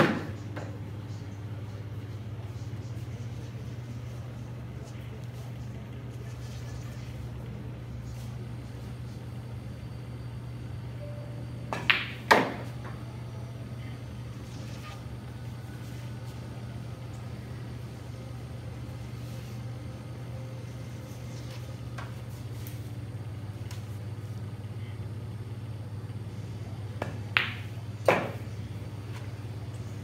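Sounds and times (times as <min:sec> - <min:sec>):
steady low hum: 0:00.0 - 0:30.0
cue and billiard balls clacking: 0:11.7 - 0:13.0, 0:27.0 - 0:28.5.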